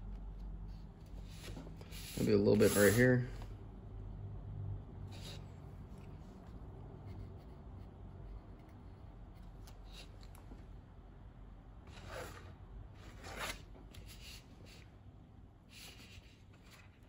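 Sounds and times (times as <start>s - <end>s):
low room hum: 0.0s - 17.0s
paper rustling: 15.8s - 17.0s.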